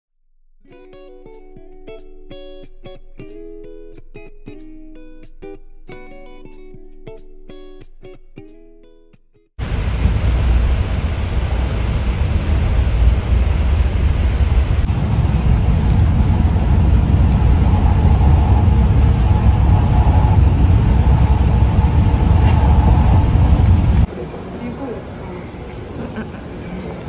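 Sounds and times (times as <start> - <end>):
bus engine and road rumble: 9.6 - 27.0.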